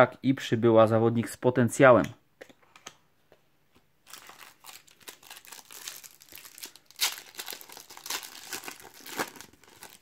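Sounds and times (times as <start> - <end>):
foil wrapper crinkling: 4.0 - 10.0.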